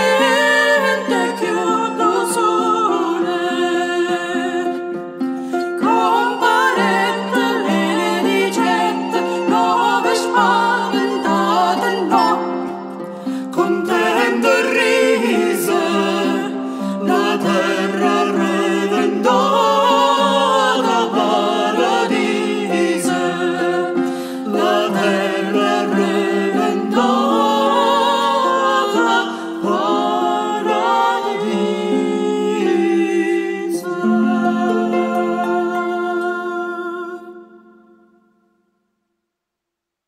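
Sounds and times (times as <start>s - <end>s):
voices singing a carol in parts: 0.0s - 38.2s
harp: 0.0s - 38.6s.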